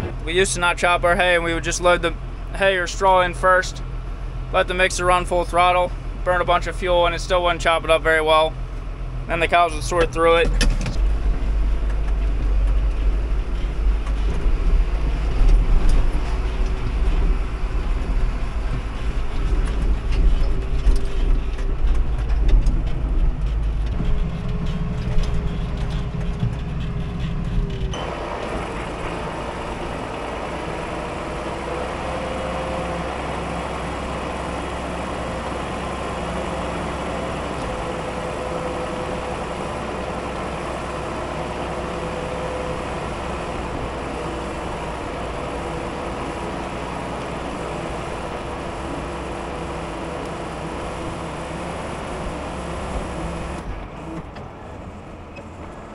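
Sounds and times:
mixer wagon humming: 0.0 - 55.8
tractor engine rumbling: 0.0 - 55.9
knocks and rattles: 10.0 - 29.4.

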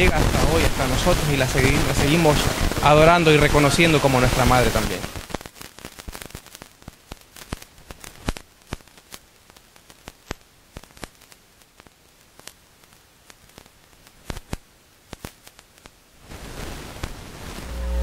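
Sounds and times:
static hiss: 0.0 - 18.0
sharp clicks and crackles: 5.0 - 16.0.

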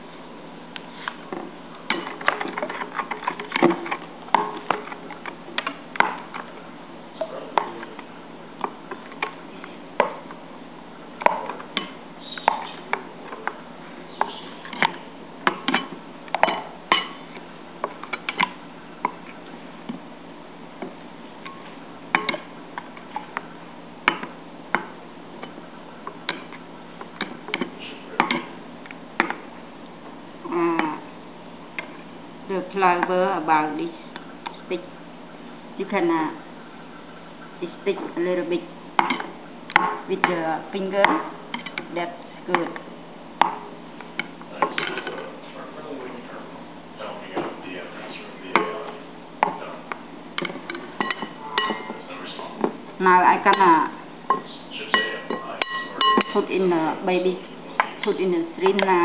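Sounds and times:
spoon clinking against glass bowl: 51.0 - 52.0, 55.0 - 56.4.

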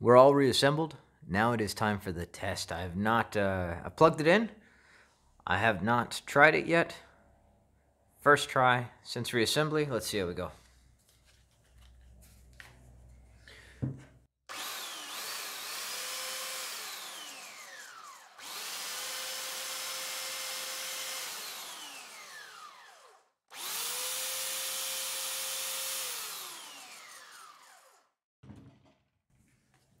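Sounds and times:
belt sander motor whining: 14.5 - 28.1.

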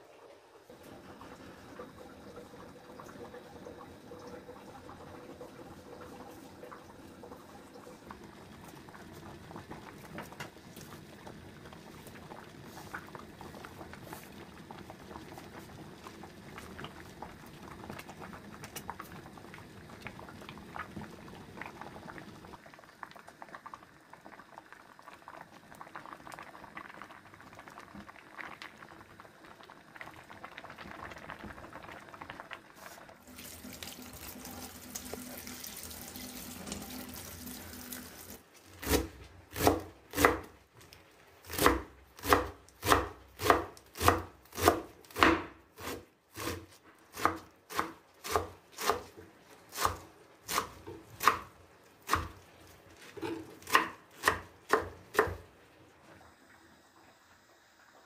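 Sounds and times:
water running: 0.0 - 22.5, 30.2 - 57.3
pot of greens bubbling: 0.0 - 58.0
knife chopping on wooden board: 41.5 - 46.6.

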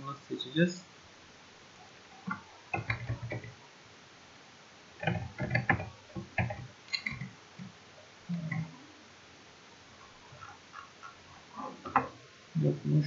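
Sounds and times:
keyboard typing: 2.3 - 3.6, 5.0 - 7.3.

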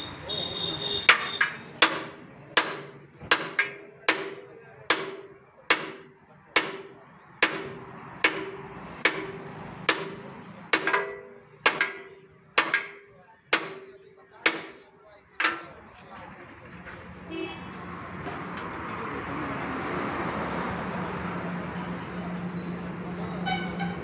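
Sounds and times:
hammer striking steel: 0.9 - 15.8.

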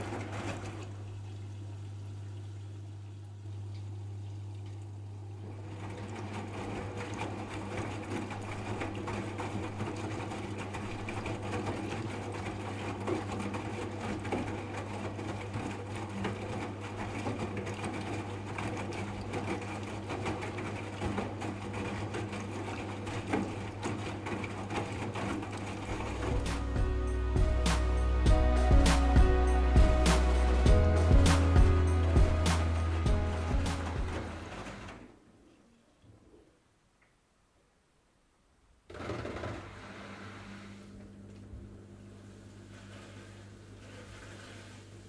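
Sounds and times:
washing machine motor whirring: 0.0 - 35.4.

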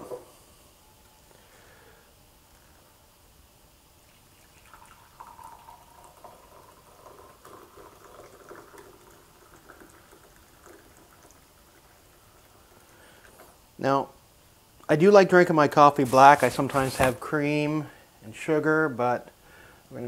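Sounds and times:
coffee pouring into mug: 4.1 - 13.6.

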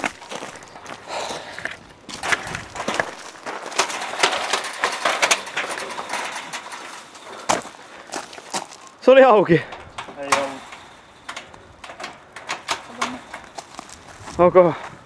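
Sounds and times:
footsteps on gravel: 0.0 - 9.0, 12.8 - 15.0
chain-link gate rattling: 0.0 - 14.7.

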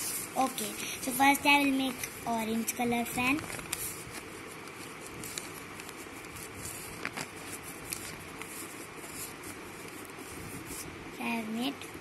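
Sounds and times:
paper rustling: 0.0 - 11.5
paper creasing clicks: 0.1 - 10.9.

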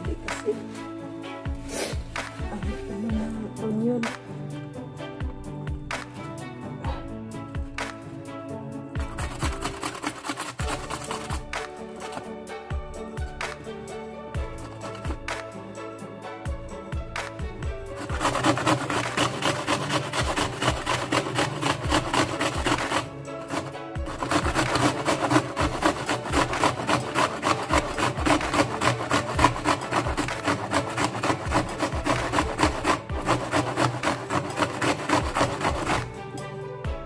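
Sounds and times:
onion grated on metal grater: 9.0 - 12.3, 14.4 - 15.3, 18.0 - 36.2.

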